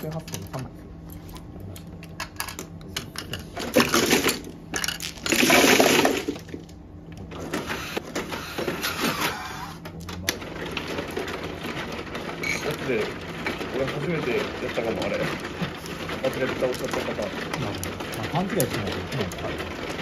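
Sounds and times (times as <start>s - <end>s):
plastic mahjong tiles clattering: 2.2s - 6.6s, 10.2s - 20.0s.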